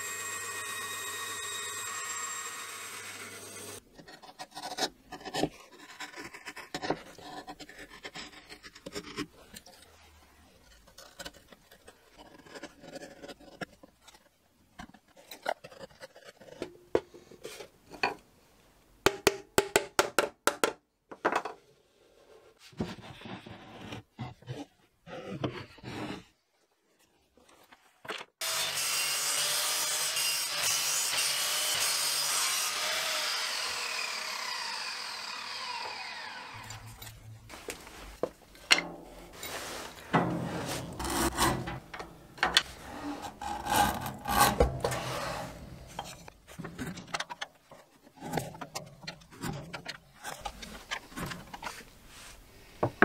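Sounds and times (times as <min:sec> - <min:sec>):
bandsaw cutting plywood: 0:00.0 - 0:03.8, 0:28.4 - 0:37.4, 0:40.2 - 0:46.4
chisel paring and scraping: 0:36.5 - 0:51.9.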